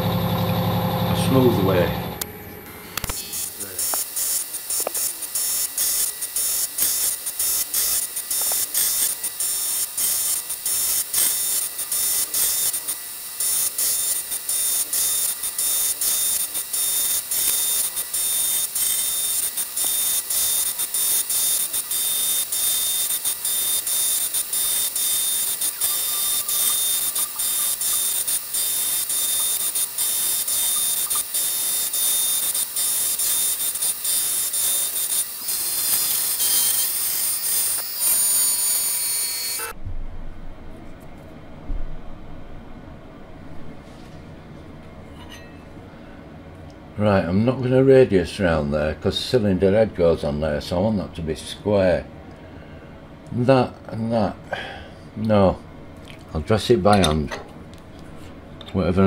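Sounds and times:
milling machine cutting metal: 0.0s - 39.8s.

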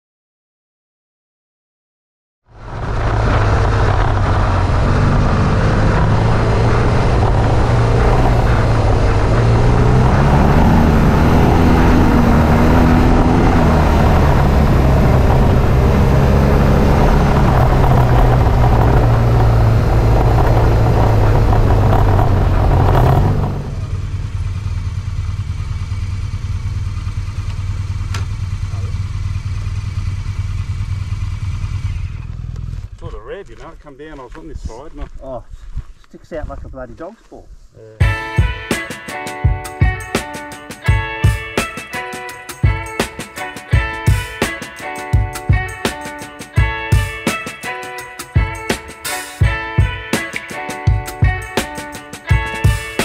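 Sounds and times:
wind and road noise: 2.5s - 37.8s
motorcycle engine running: 2.6s - 33.7s.

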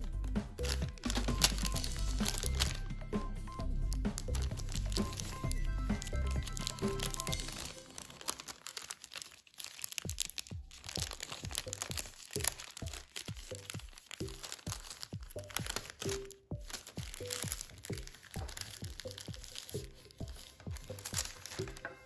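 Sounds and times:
paper being folded and creased: 0.0s - 22.0s.

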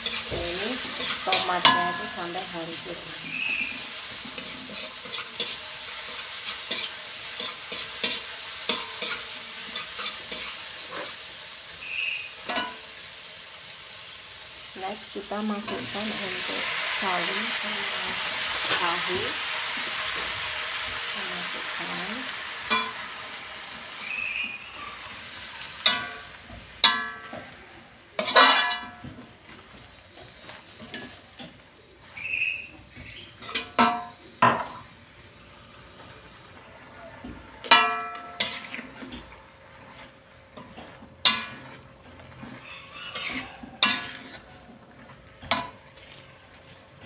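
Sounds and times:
metal spatula scraping a wok: 0.0s - 13.3s, 15.3s - 31.3s, 33.2s - 34.9s, 37.6s - 47.0s
sizzling hiss: 0.0s - 36.5s.

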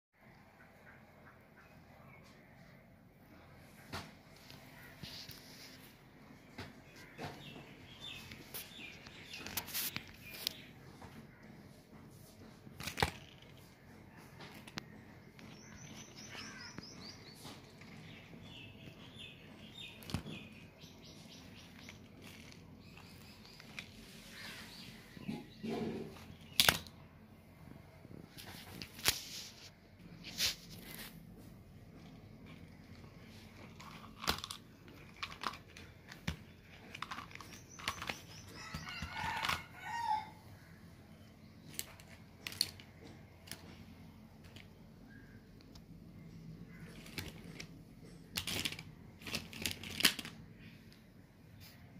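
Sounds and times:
birds chirping: 0.2s - 28.8s, 30.8s - 49.2s
plastic toys clicking and knocking: 25.2s - 27.0s, 32.0s - 39.8s, 41.6s - 44.8s, 46.8s - 51.0s
plastic toy clattering rattle: 33.7s - 38.4s, 48.3s - 50.4s.

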